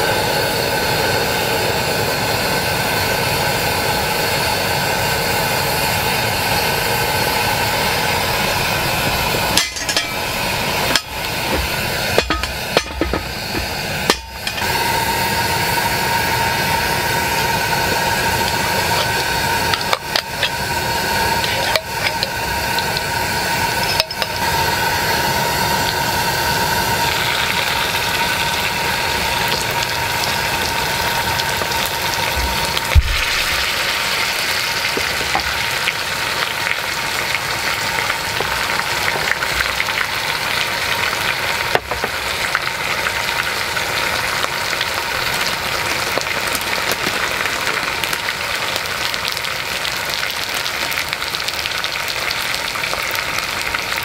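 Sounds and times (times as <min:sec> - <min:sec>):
gas burner roaring: 0:00.0 - 0:54.0
glass and metal clinking on pot: 0:09.4 - 0:14.8, 0:18.8 - 0:20.7, 0:21.4 - 0:22.9, 0:23.8 - 0:24.5.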